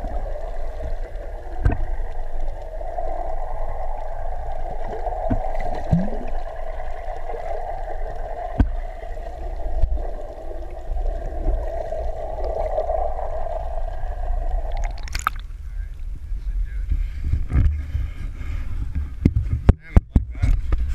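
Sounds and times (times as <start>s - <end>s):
bubbling: 0.0s - 15.6s
muffled underwater hiss: 0.0s - 19.6s
water splash: 5.2s - 6.4s, 14.6s - 15.5s.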